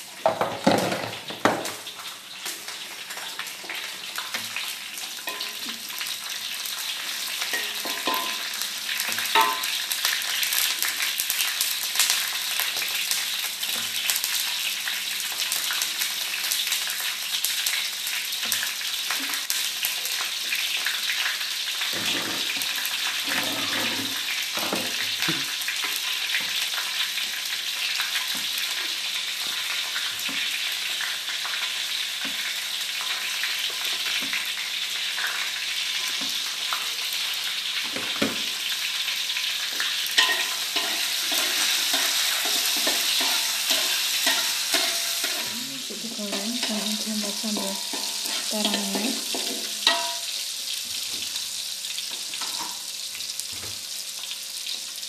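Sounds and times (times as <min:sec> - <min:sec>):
oil sizzling in a wok: 0:00.0 - 0:55.0
spatula scraping and knocking pan: 0:05.2 - 0:06.1, 0:07.4 - 0:09.9, 0:40.1 - 0:45.6, 0:46.2 - 0:50.4.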